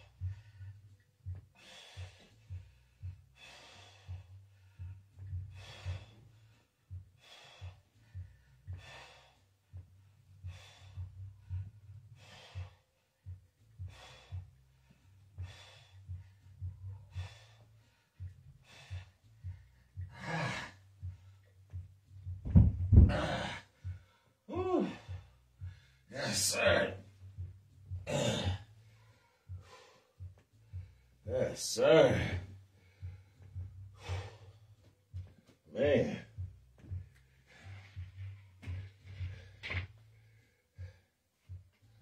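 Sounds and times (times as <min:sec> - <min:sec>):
man exhaling forcefully: 0:23.0 - 0:23.7.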